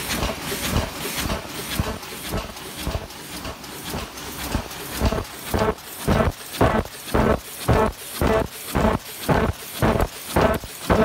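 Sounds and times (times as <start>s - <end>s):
paper cup machine knocking: 0.0s - 11.0s.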